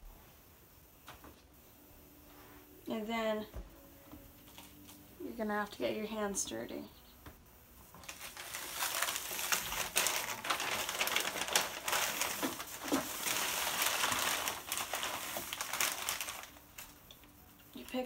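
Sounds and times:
newspaper rustling and crinkling: 7.9s - 18.0s.

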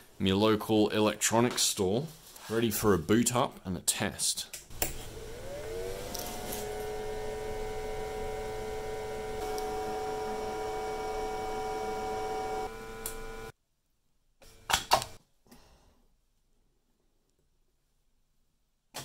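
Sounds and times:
cooling fan whining: 4.7s - 13.5s.

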